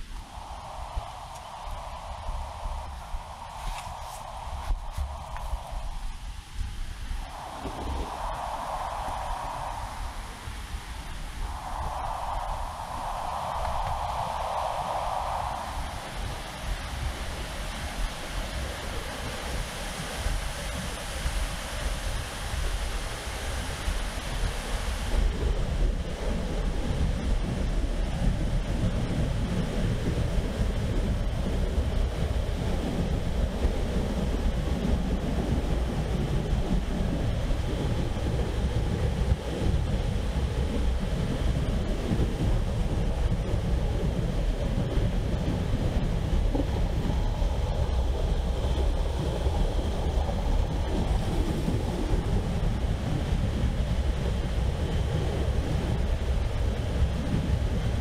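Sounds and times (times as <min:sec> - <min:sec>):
wind rumbling on microphone: 0:00.0 - 0:58.0
river water rushing: 0:00.2 - 0:06.3, 0:07.2 - 0:25.0.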